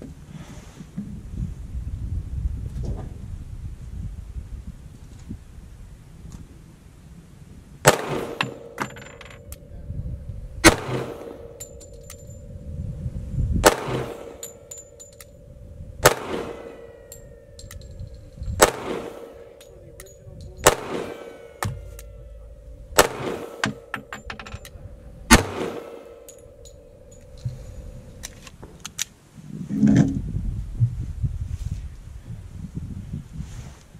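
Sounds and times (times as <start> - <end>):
pistol shots with echo: 7.8 - 9.5, 10.6 - 12.4, 13.6 - 18.0, 18.6 - 24.2, 25.2 - 27.4.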